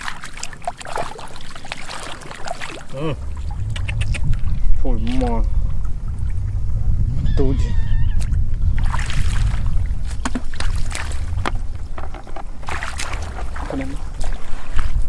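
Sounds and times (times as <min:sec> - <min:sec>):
footsteps splashing through water: 0:00.0 - 0:05.3, 0:08.8 - 0:15.0
wind rumble on microphone: 0:02.3 - 0:15.0.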